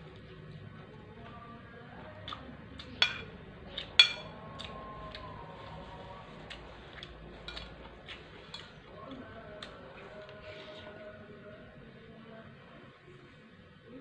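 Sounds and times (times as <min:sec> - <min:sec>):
cutlery clinking on ceramic plate: 0:03.0 - 0:03.3, 0:03.9 - 0:04.3, 0:07.5 - 0:07.7.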